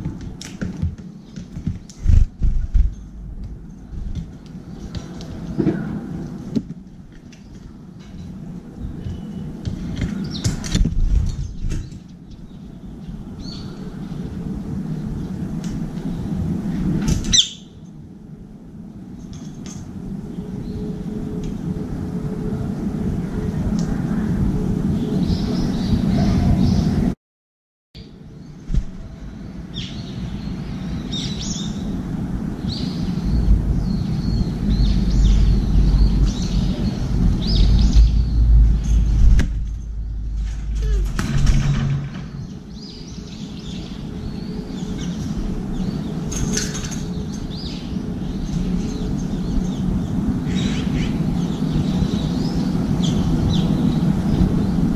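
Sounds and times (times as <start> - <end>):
low rumble of city traffic: 0.0 - 27.2, 28.0 - 54.9
bird wing flaps: 0.2 - 3.0
low rumble: 2.0 - 11.7, 31.8 - 44.8
birds chirping and calling: 17.2 - 17.8, 32.6 - 54.9.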